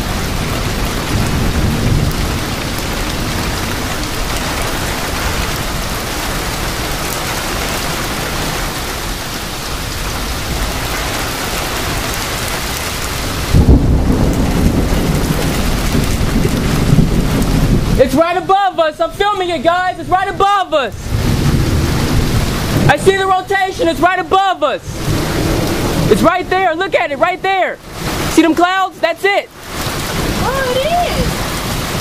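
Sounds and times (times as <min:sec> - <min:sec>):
deep thunder rumble: 0:00.0 - 0:18.5, 0:20.0 - 0:27.2
heavy rain hiss: 0:00.0 - 0:32.0.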